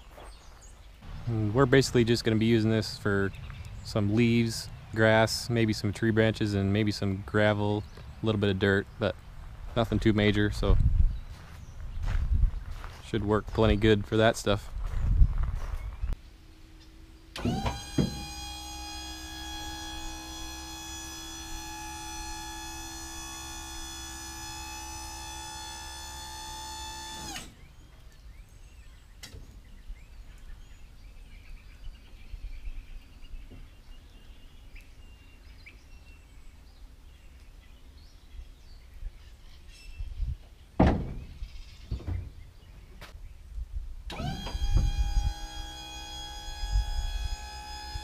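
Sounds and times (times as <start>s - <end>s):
hydraulic pump whining: 17.3s - 27.7s, 44.1s - 48.0s
metal bed thunk: 40.8s - 41.3s.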